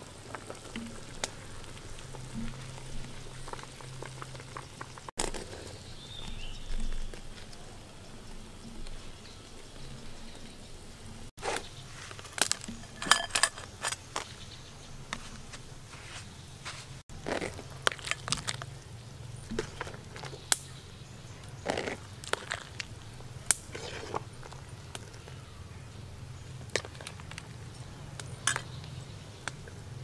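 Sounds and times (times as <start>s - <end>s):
food preparation handling noise: 11.4s - 18.8s
metal spoon in bowl: 12.4s - 14.3s.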